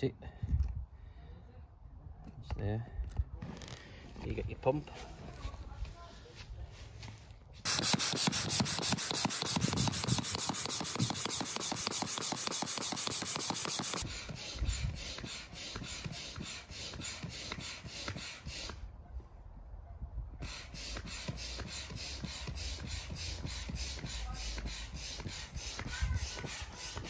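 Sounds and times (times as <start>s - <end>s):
hand air pump strokes: 7.6s - 18.8s, 20.4s - 27.0s.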